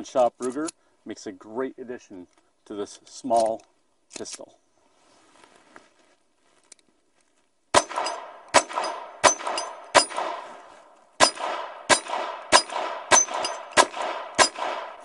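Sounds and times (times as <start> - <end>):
pistol shots with ringing tail: 7.7 - 10.6, 11.2 - 15.0.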